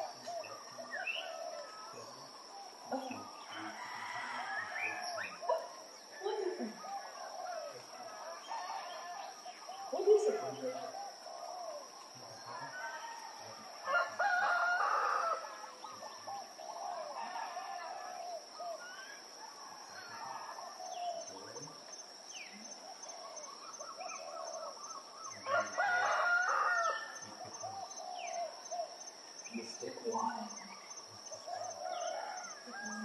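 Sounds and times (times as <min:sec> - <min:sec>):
small birds chirping: 0:00.0 - 0:33.0
rooster crowing: 0:03.0 - 0:05.6, 0:06.6 - 0:09.5, 0:12.5 - 0:15.8, 0:16.8 - 0:21.0, 0:25.3 - 0:28.7, 0:31.4 - 0:33.0.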